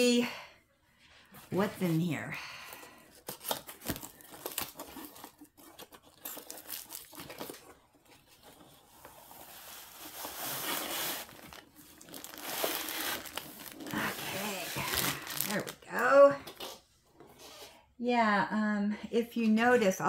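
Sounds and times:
packaging crinkling and rustling: 3.0s - 16.8s
tape tearing: 3.2s - 15.8s.

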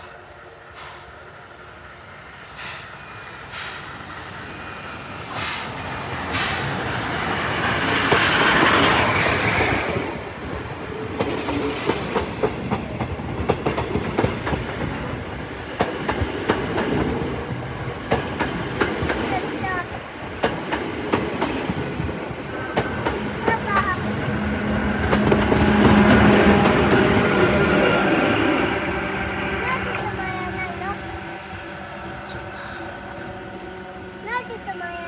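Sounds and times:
steam train passing: 0.0s - 35.0s.

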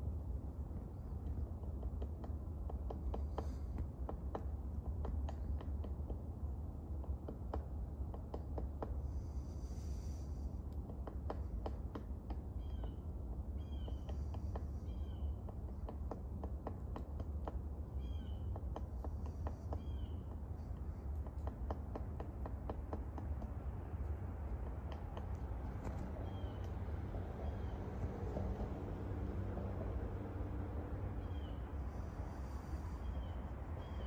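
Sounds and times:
woodpecker pecking at tree: 0.0s - 34.0s
steady low rumble: 23.2s - 34.0s.

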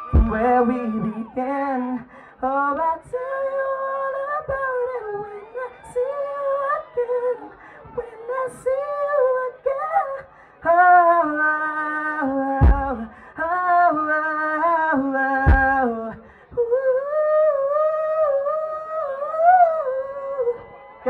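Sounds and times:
person singing long notes: 0.0s - 20.7s
deep thump: 12.6s - 13.0s, 15.5s - 15.8s.

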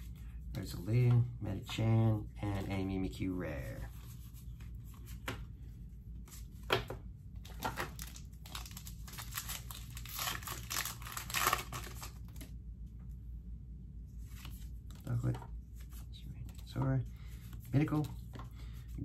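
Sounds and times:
plastic wrapper crinkling and tearing: 7.4s - 12.5s.

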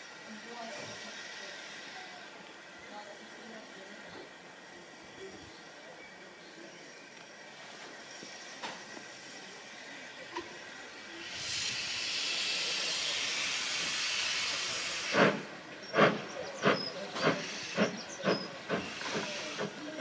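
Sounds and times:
steam locomotive hissing steam: 0.0s - 20.0s
locomotive exhaust chuffs: 11.2s - 20.0s.

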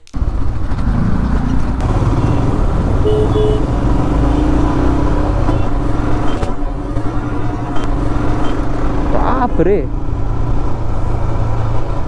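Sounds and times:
road noise in traffic: 0.0s - 12.0s
motorcycle engine running: 0.2s - 9.6s.

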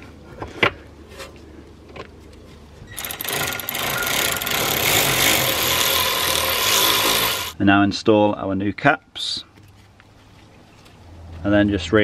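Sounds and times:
cordless power tool driving bolts: 3.0s - 7.6s.

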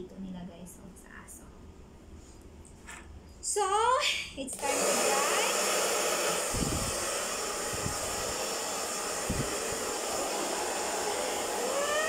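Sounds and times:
hair dryer running: 4.5s - 12.0s.

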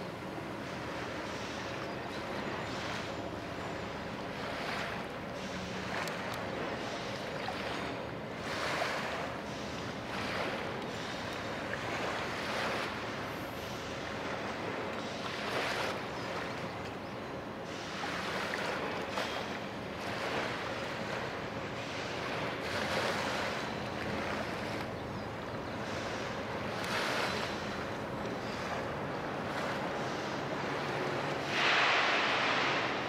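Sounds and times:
water rushing on shore: 0.0s - 33.0s
wind: 0.0s - 33.0s.

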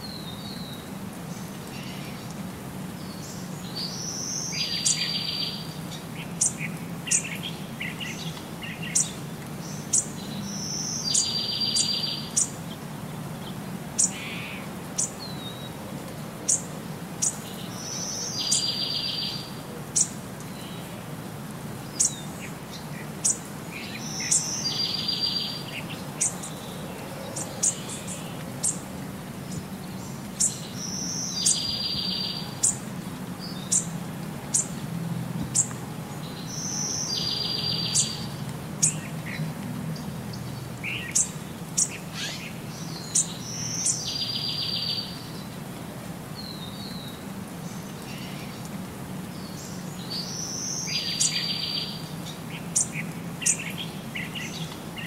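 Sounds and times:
birds chirping and trilling: 3.0s - 12.8s, 13.4s - 15.8s, 16.5s - 20.9s, 21.9s - 33.9s, 35.5s - 39.4s, 40.0s - 45.6s, 49.3s - 55.0s.

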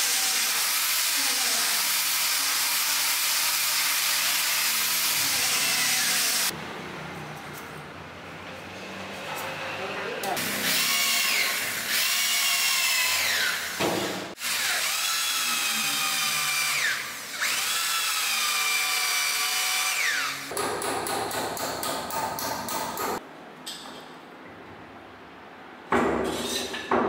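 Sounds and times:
electric drill boring into wood: 0.0s - 6.5s, 10.4s - 20.5s.

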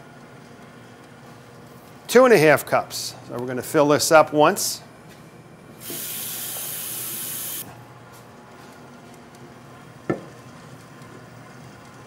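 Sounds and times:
tap water running into a cup: 5.8s - 7.6s.

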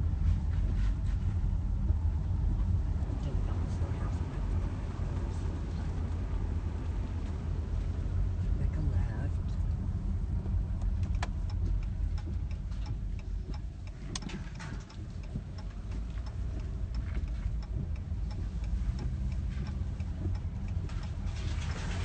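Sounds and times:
road and engine rumble inside car: 0.0s - 22.0s
light ticks: 10.4s - 21.5s.

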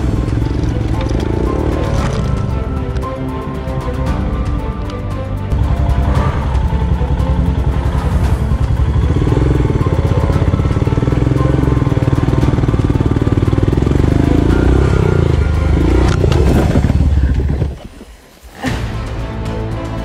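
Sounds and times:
motorcycle engine pulling under load: 0.0s - 3.1s, 7.1s - 18.0s.

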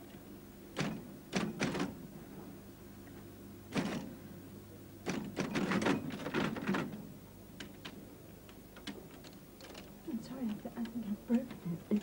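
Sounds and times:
steady low hum: 0.0s - 12.0s
electric typewriter keys striking: 0.8s - 1.9s.

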